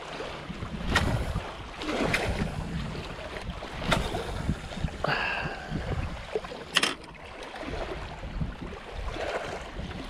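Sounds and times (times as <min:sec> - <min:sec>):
waves lapping on rocks: 0:00.0 - 0:10.0
wind rumbling on microphone: 0:00.3 - 0:10.0.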